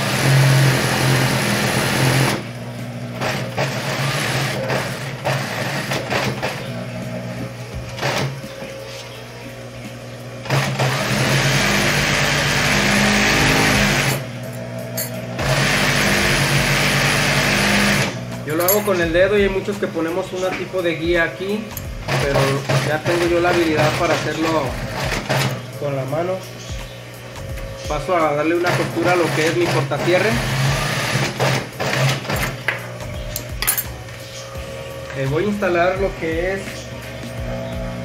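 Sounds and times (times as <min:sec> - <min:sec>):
sewing machine stitching: 0:00.0 - 0:02.4, 0:03.2 - 0:06.7, 0:08.0 - 0:08.4, 0:10.4 - 0:14.2, 0:15.4 - 0:18.2, 0:22.1 - 0:25.6, 0:28.6 - 0:32.6.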